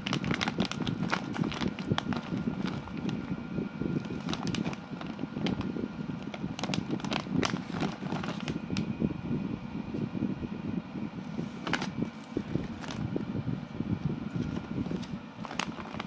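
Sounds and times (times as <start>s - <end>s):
plastic bag crinkling: 0.0s - 3.3s, 4.0s - 8.8s, 11.6s - 13.0s, 14.4s - 16.0s
steady low rumble: 0.0s - 16.0s.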